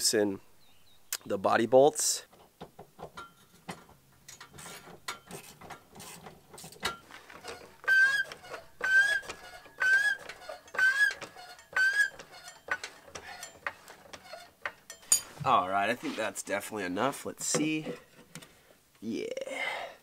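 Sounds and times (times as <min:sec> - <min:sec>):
floor jack pumping with squeaks: 0:04.4 - 0:15.0.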